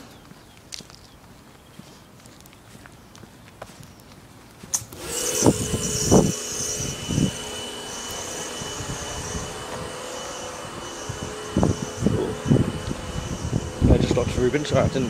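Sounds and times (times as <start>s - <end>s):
machine hum with high whine: 4.6s - 15.0s.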